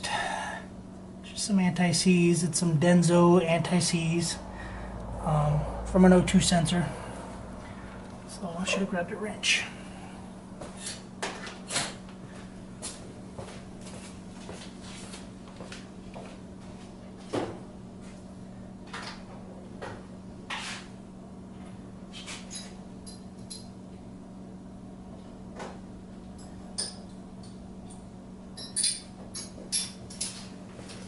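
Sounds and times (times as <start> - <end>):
steady low hum: 0.0 - 31.0
wrench clinking: 28.6 - 30.3.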